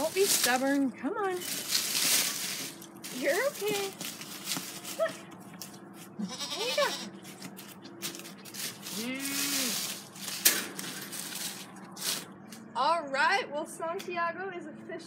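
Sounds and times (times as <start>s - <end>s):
dry leaves rustling underfoot: 0.0s - 12.6s
goat bleating: 6.0s - 7.3s.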